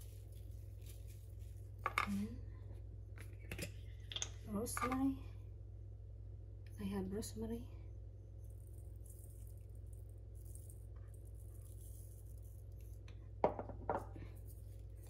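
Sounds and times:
steady low hum: 0.0 - 15.0
jar knocking on counter: 13.4 - 14.1.

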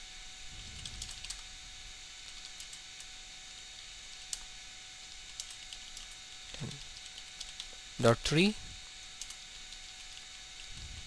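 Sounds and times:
faint steady hum: 0.0 - 11.0
keyboard typing: 5.3 - 6.2, 6.8 - 7.7.

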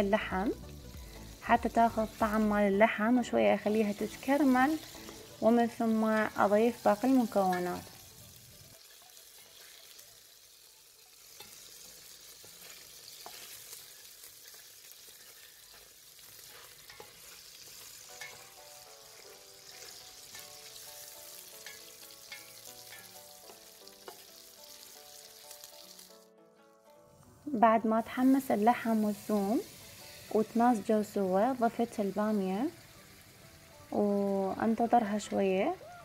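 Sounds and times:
meat sizzling in a pot: 0.0 - 36.0
spatula scraping a pan: 11.2 - 25.6.

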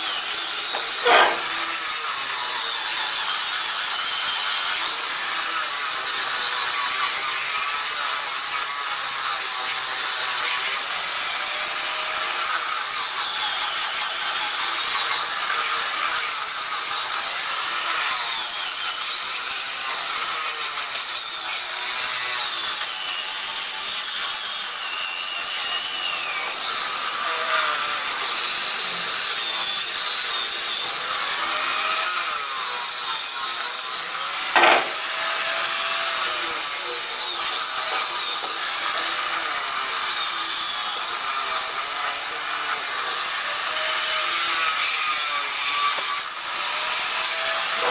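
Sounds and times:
sharp knock: 34.6 - 35.0
sandpaper rubbing on wood: 47.6 - 47.9.

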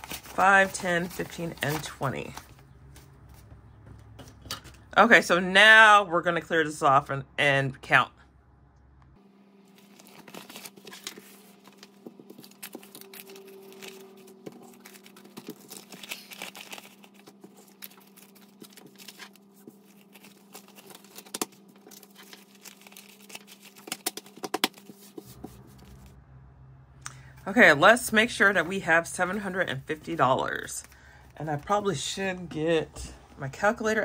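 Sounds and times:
paper rustling and crinkling: 0.0 - 3.5, 9.7 - 26.2.

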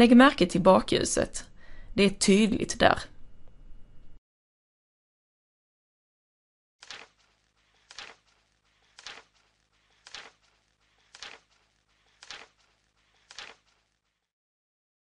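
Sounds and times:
slow footsteps: 6.8 - 14.3.

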